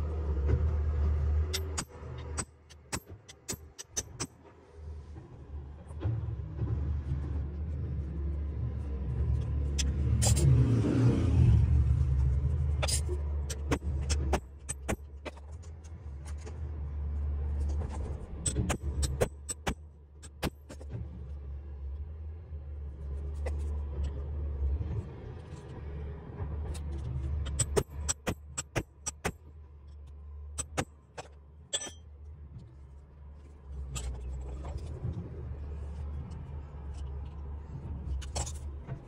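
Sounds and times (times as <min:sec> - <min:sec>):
low engine rumble: 0:00.0 - 0:39.0.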